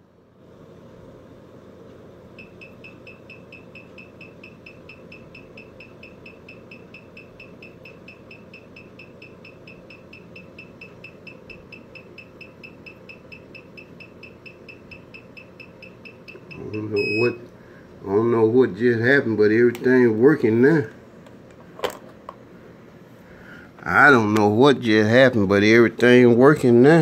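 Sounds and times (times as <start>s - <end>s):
rapid electronic beeping: 2.4s - 17.4s.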